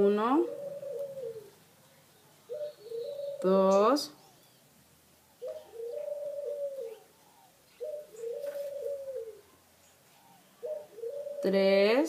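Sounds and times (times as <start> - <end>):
dove cooing: 0.0 - 1.6, 2.3 - 12.0.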